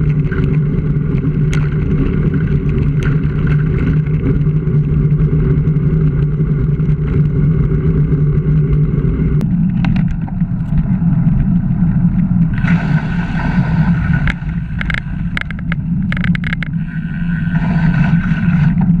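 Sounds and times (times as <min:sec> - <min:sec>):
bicycle tyre noise: 0:00.0 - 0:19.0
wind rumble: 0:00.0 - 0:19.0
bike clicking and rattling: 0:14.2 - 0:16.8.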